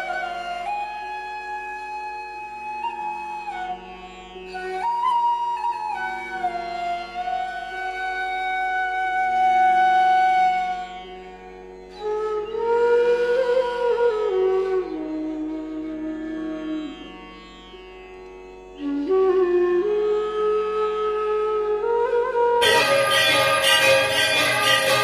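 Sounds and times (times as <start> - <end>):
slow flute melody: 0.0 - 17.0, 18.8 - 25.0
steady drone: 22.6 - 25.0.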